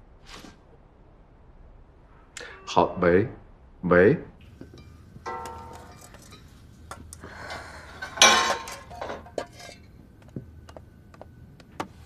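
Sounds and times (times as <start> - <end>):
metal spoons and pots clattering: 4.6 - 10.0.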